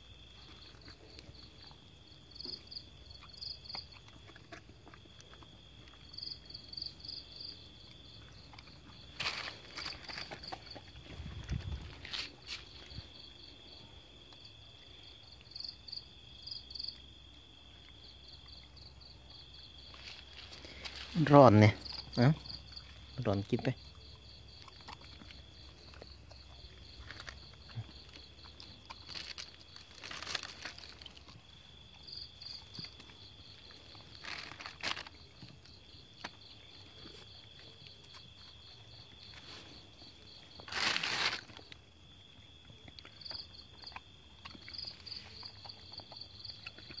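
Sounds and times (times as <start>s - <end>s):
insects chirping: 0.0s - 47.0s
plastic bag crinkling: 29.0s - 31.3s, 34.1s - 35.2s, 40.6s - 41.7s.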